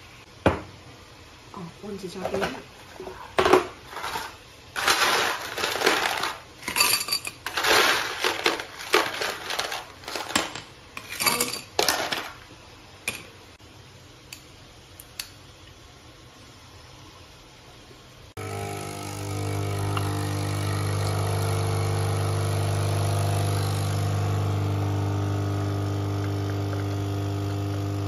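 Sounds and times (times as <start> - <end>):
ice cubes rattling in plastic box: 3.9 - 6.6, 7.4 - 10.5, 11.4 - 12.4
ice clinking into glass: 4.8 - 9.7.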